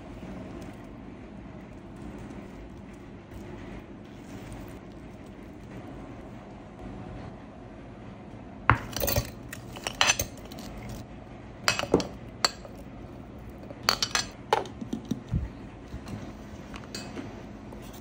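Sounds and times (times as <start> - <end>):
plates and steel jar clinking: 8.7 - 11.0, 13.8 - 15.0.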